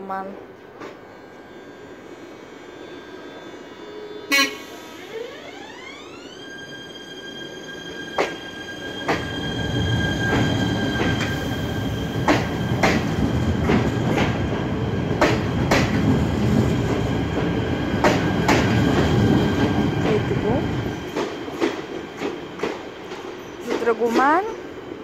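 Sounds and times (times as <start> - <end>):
train high whine: 0.0 - 25.0
train wheels clicking over rail joints: 12.2 - 20.1, 21.0 - 24.5.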